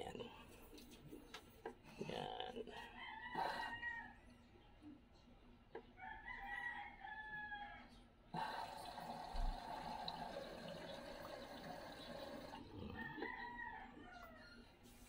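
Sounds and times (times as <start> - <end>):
washing machine water sloshing: 8.7 - 12.6.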